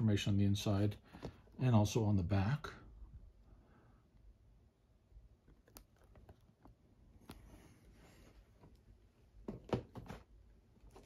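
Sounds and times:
soft rustle: 0:05.6 - 0:09.3.

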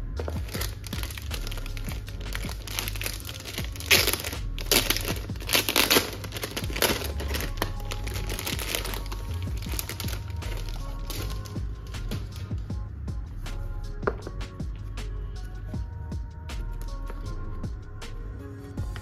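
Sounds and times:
background music: 0:00.0 - 0:19.0
plastic mailer bag crinkling: 0:00.2 - 0:11.6.

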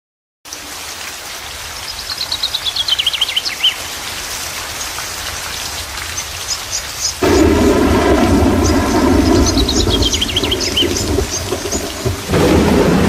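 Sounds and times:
steady rain: 0:00.5 - 0:13.0
songbird trilling: 0:08.6 - 0:12.0.

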